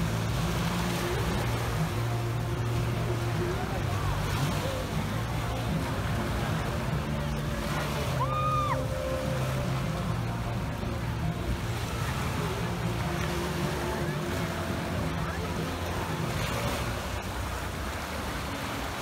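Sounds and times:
faint distant voices: 0.0 - 19.0
small waves lapping: 0.0 - 19.0
steady low rumble: 0.0 - 19.0.

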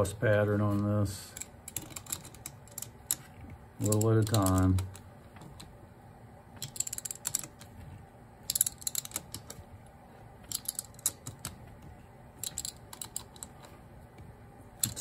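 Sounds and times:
ratchet clicking: 6.6 - 7.5.

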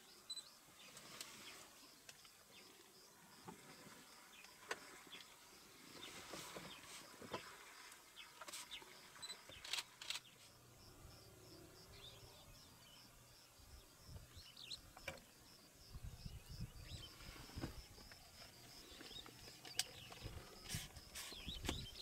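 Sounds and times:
faint high pulsing chirping: 0.0 - 3.4.

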